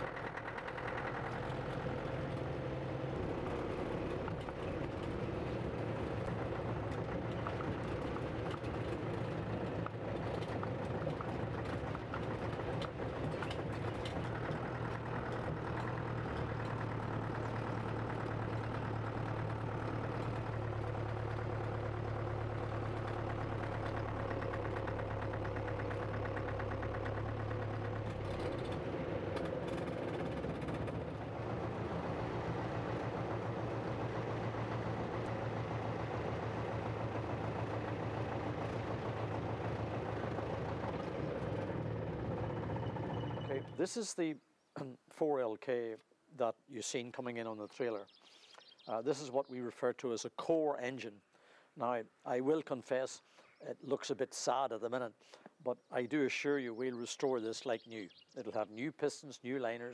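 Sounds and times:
diesel engine running: 0:00.0 - 0:43.8.

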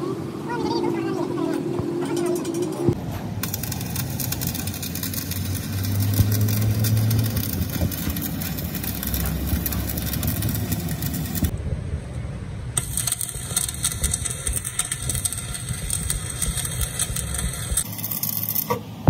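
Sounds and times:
welding arc crackling: 0:03.4 - 0:11.5, 0:12.8 - 0:19.0.

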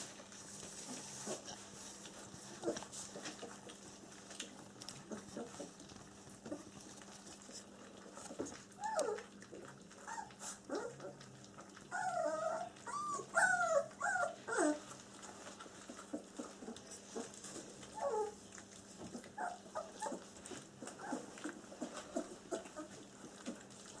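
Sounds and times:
puppies whimpering: 0:08.1 - 0:24.0.

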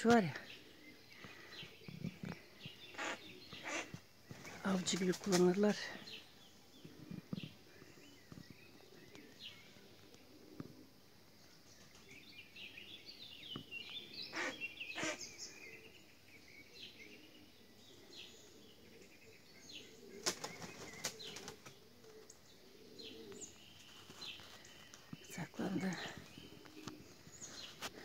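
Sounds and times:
small birds chirping: 0:00.0 - 0:28.0
bird wings flapping: 0:03.9 - 0:05.7, 0:20.2 - 0:22.2.

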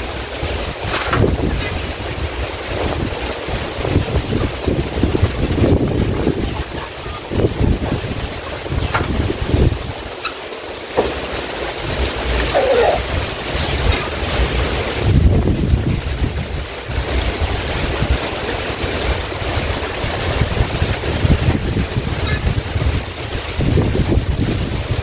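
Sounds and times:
wind buffeting microphone: 0:00.0 - 0:10.3, 0:11.0 - 0:25.0
broom sweeping a floor: 0:12.6 - 0:25.0.

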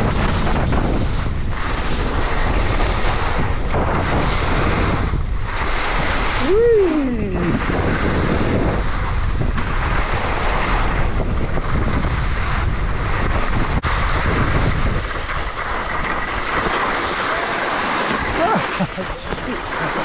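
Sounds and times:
skis hissing over snow: 0:00.0 - 0:20.0
wind rushing over microphone: 0:00.0 - 0:20.0.

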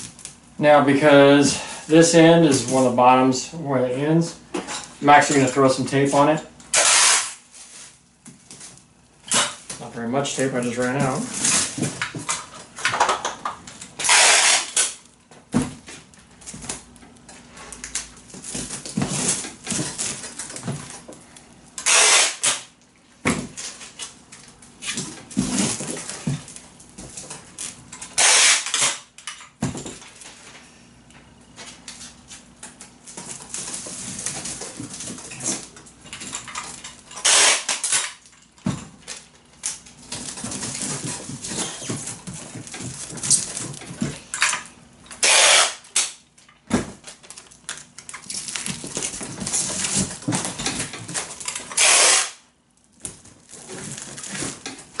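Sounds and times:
plastic tape dispenser clicking: 0:06.7 - 0:07.4, 0:21.8 - 0:22.7, 0:28.1 - 0:29.1, 0:37.2 - 0:38.2, 0:45.1 - 0:46.2, 0:51.5 - 0:52.4
packing tape ripping off roll: 0:06.7 - 0:09.8, 0:11.2 - 0:15.2, 0:17.6 - 0:21.1, 0:21.8 - 0:29.3, 0:36.7 - 0:38.4, 0:39.0 - 0:44.3, 0:45.0 - 0:55.0.

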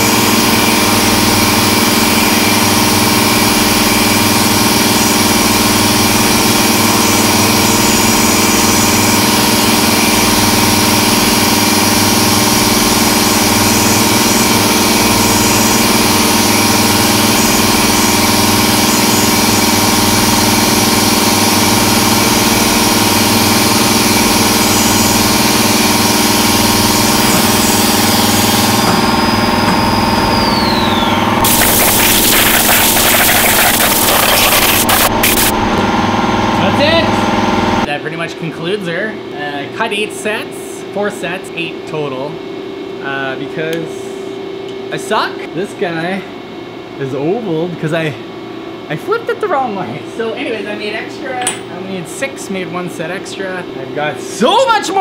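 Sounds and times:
milling machine cutting metal: 0:00.0 - 0:37.8
spindle whine: 0:00.0 - 0:37.9.

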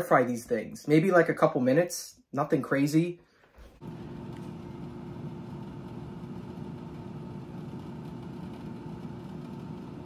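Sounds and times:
air fryer fan hum: 0:03.8 - 0:10.0.

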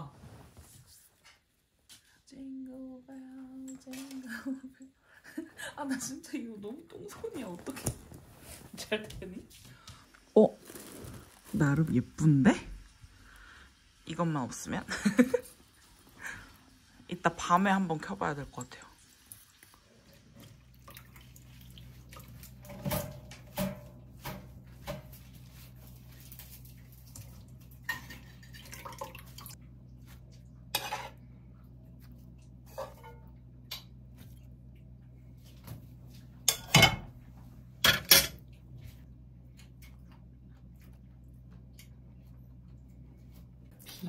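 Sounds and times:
steady low hum: 0:20.1 - 0:44.0
dishes clattering: 0:22.6 - 0:25.2, 0:27.8 - 0:29.2, 0:32.7 - 0:34.0, 0:36.4 - 0:37.2, 0:37.8 - 0:38.5
dishes and utensils clinking: 0:30.7 - 0:31.2, 0:32.7 - 0:34.0, 0:36.4 - 0:37.2, 0:37.8 - 0:38.5.

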